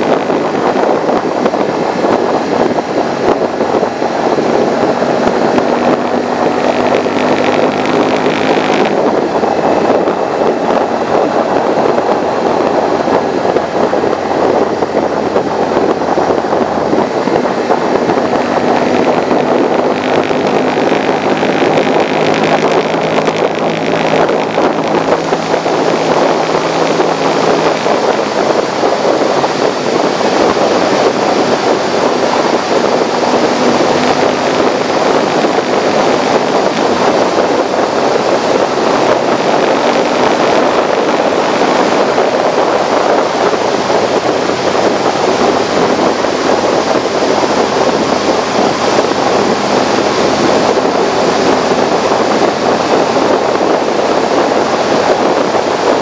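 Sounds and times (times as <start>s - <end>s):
motorcycle engine: 0.0s - 56.0s
wind rush over microphone: 0.0s - 56.0s.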